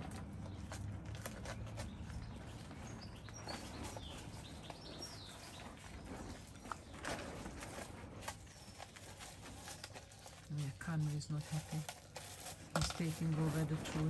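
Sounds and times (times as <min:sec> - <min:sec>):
puppies chewing cardboard tube: 0:00.0 - 0:14.0.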